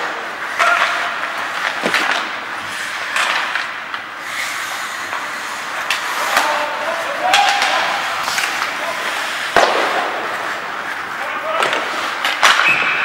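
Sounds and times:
sticks and puck knocking: 0.0s - 2.5s, 7.2s - 12.7s
skates scraping ice: 0.0s - 13.0s.

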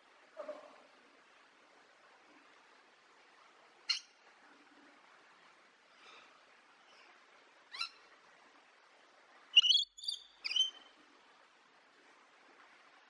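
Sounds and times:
faint forest ambience hiss: 0.0s - 13.0s
lorikeet screeching: 9.6s - 10.8s.

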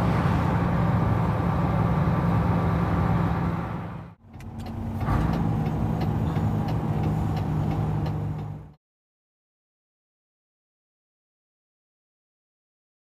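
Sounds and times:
truck diesel engine running: 0.0s - 8.8s.

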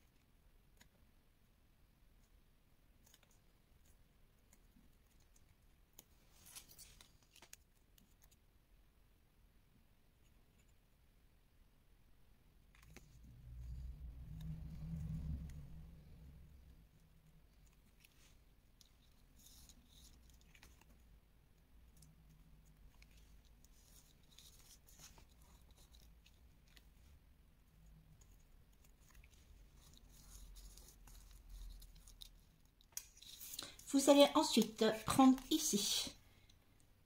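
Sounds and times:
card and plastic rustling and clicking: 4.4s - 8.4s, 12.7s - 13.3s, 17.5s - 35.9s.

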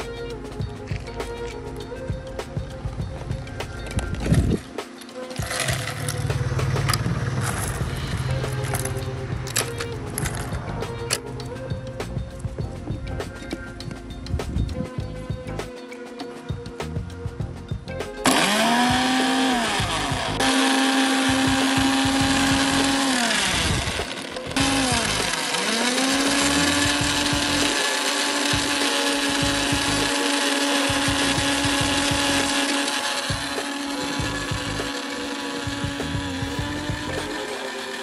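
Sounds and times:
electric blender running: 4.4s - 10.6s, 18.2s - 38.0s.

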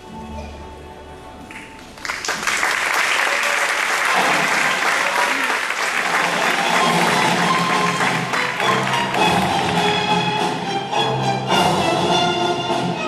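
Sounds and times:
audience applauding: 1.5s - 10.2s.

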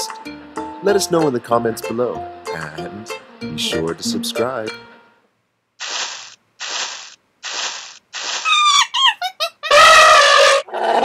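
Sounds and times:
whooshing bursts: 5.8s - 8.6s
squeaky falling chirps: 8.2s - 10.6s.

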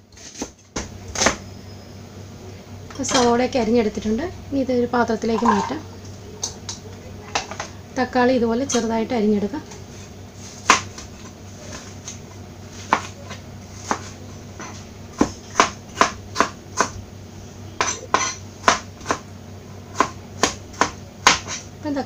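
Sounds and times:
knife chopping on cutting board: 10.5s - 12.2s, 12.8s - 17.0s, 17.8s - 19.2s, 19.9s - 21.7s.

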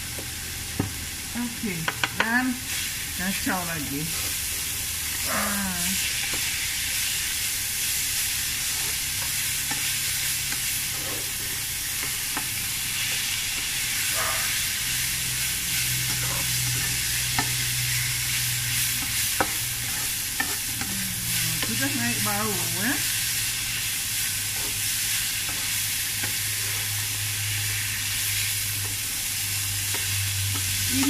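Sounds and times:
leaves sizzling in a frying pan: 0.0s - 31.0s
spatula scraping and tapping pan: 1.9s - 2.3s, 12.0s - 13.7s, 19.0s - 20.9s.

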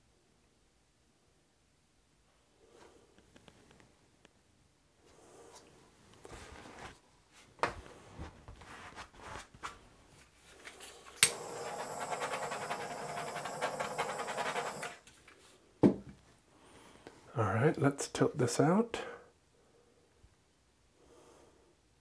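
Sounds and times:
butane torch clicking alight: 11.2s - 11.8s
torch flame hissing: 11.2s - 15.0s.

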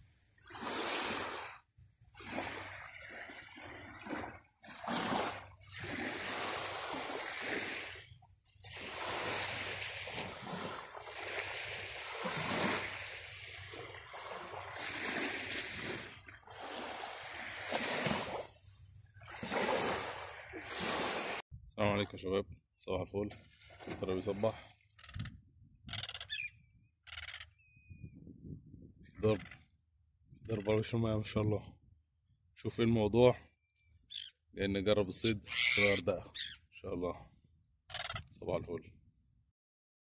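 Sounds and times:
small waves lapping on sand: 0.3s - 21.4s, 23.3s - 25.0s.

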